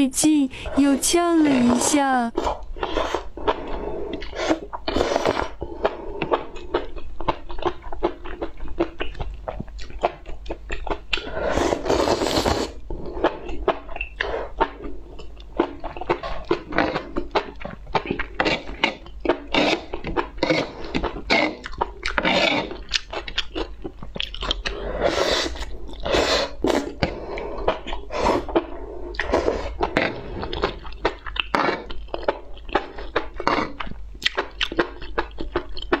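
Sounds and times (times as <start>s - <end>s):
slurping: 0.8s - 6.9s, 11.1s - 14.8s, 15.6s - 36.0s
wet chewing mouth clicks: 2.3s - 36.0s.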